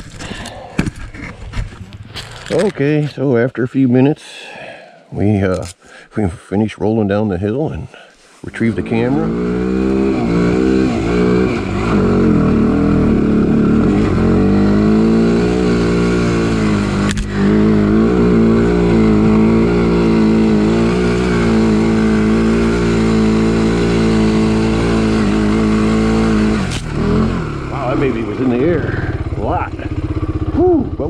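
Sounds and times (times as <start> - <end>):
atv engine running: 8.6 - 31.0.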